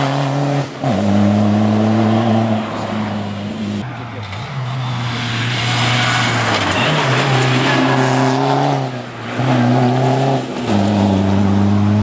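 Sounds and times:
rally car engine revving: 0.0 - 12.0.

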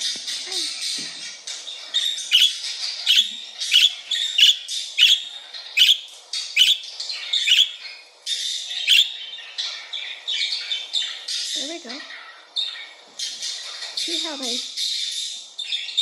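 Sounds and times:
budgerigars twittering: 0.0 - 16.0
sharp budgie chirps: 1.8 - 12.0.

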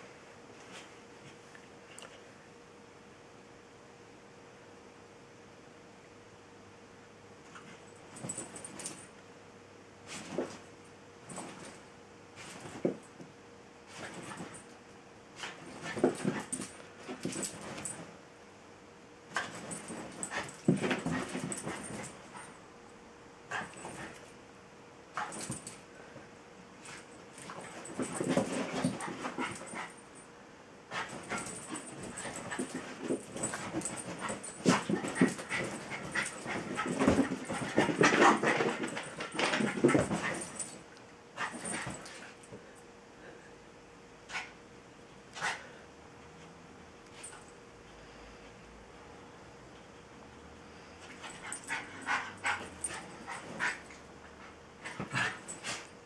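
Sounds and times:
dog making play noises: 26.9 - 30.0, 30.9 - 40.8, 51.3 - 55.9
scuffling on a dog bed: 31.0 - 40.8.

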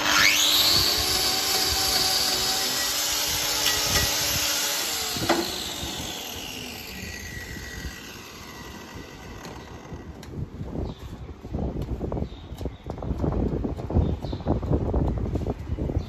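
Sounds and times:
power tool whining: 0.0 - 10.3.

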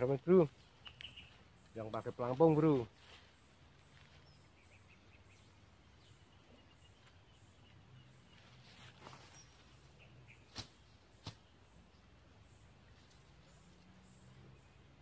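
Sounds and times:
faint high chirps: 0.5 - 2.2.

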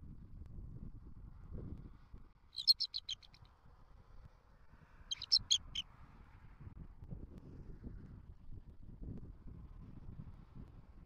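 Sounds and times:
eagle chittering calls: 2.6 - 3.3, 5.1 - 5.8.

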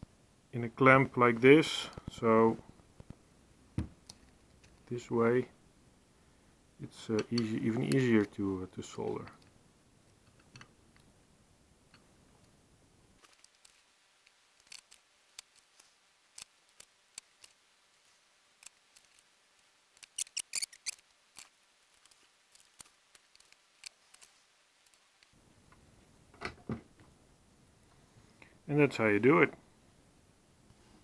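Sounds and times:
small metal parts clicking: 14.6 - 17.6, 20.0 - 25.3.

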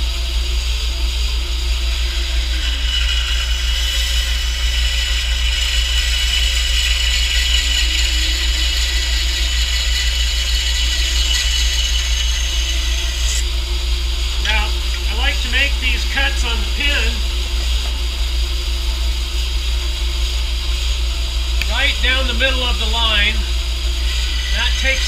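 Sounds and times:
bandsaw motor hum: 0.0 - 25.0
saw blade hissing through wood: 21.7 - 25.0.

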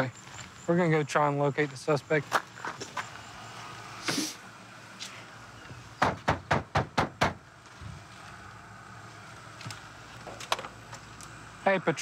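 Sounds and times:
knocking on front door: 6.0 - 7.4.

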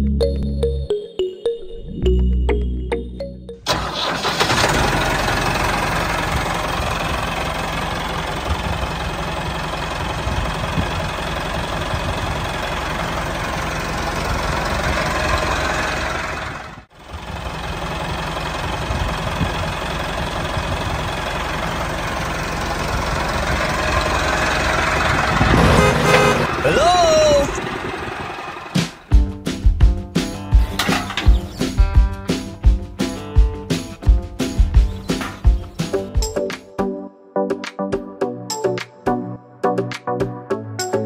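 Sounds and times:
tractor engine running: 3.6 - 36.4.

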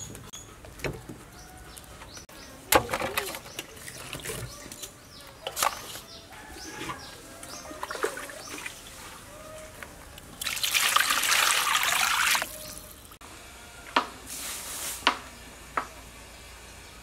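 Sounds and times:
birds chirping: 0.0 - 13.2.

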